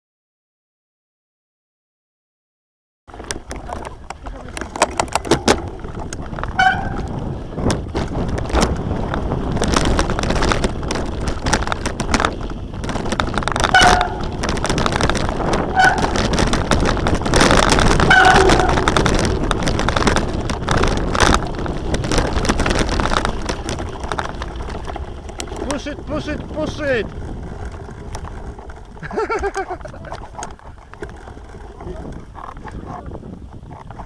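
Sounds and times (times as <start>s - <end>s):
bike rattling and clicking: 3.1s - 34.0s
bike tyre rumble: 3.1s - 34.0s
wind noise on microphone: 3.1s - 34.0s
short squeaks: 6.5s - 7.2s, 13.6s - 14.5s, 15.6s - 16.4s, 17.9s - 19.0s.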